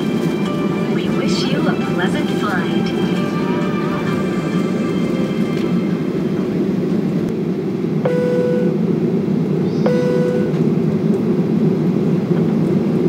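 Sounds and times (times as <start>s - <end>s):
airliner cabin rumble and hiss: 0.0s - 13.0s.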